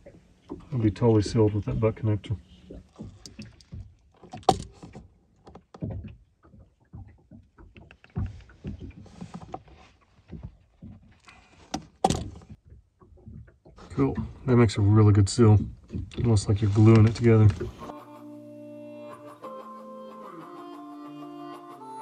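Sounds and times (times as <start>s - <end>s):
rustling: 16.3s - 17.9s.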